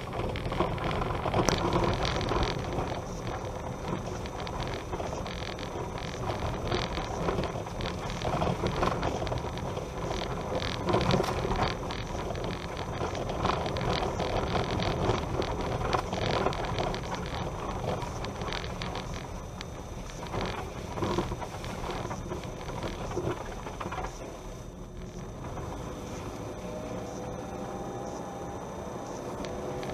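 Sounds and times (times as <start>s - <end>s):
small rattles and clicks: 0.0s - 26.6s
tyres rumbling on dirt road: 0.0s - 29.9s.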